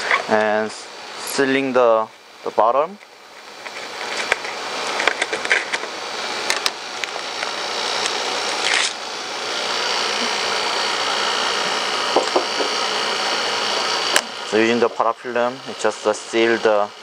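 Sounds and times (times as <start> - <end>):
film tearing rasp: 6.5 - 9.0.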